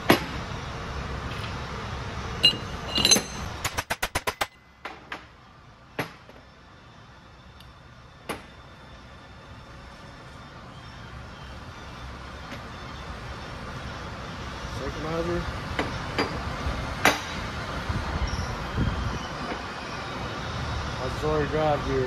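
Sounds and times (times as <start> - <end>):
steady background noise: 0.0 - 22.0
metal parts clinking on workbench: 2.4 - 3.8
sharp metal taps: 2.4 - 5.0.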